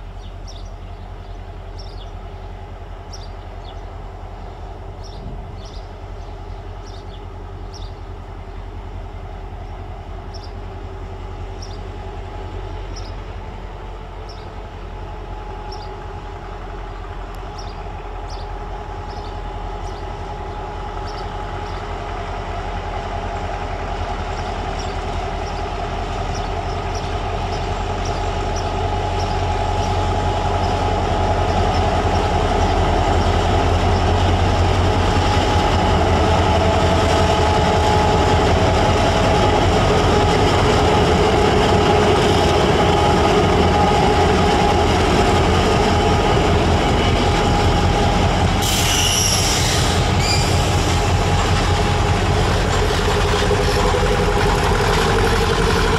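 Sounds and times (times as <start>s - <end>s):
diesel locomotive engine drone: 0.0s - 55.9s.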